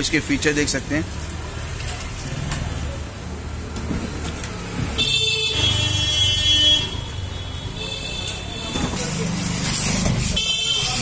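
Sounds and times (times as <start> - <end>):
road traffic rumbling: 0.0 - 11.0
vehicle horn: 5.0 - 8.9, 10.3 - 11.0.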